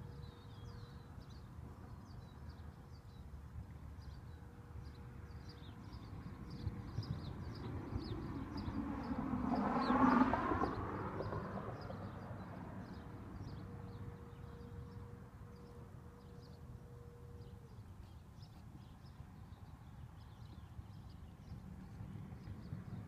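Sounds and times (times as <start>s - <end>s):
vehicle engine passing: 8.0s - 13.4s.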